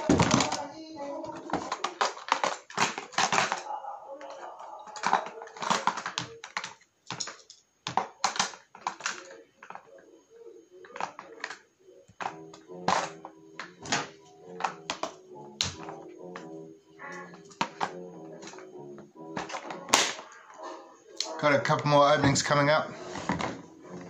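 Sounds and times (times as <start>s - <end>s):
plastic case clicks and clatter: 0.0s - 9.9s, 10.8s - 16.5s, 19.4s - 20.3s.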